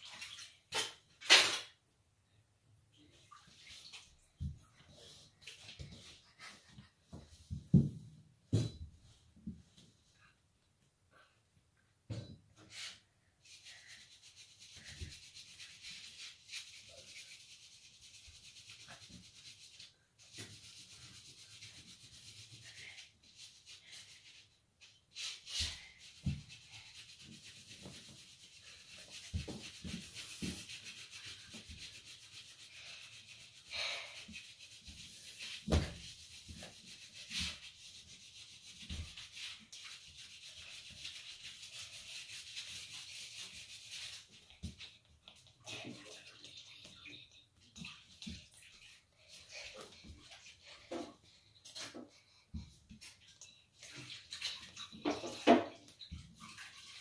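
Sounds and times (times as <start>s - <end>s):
hands and feet thumping on tile: 5.6s - 9.8s, 35.4s - 36.7s.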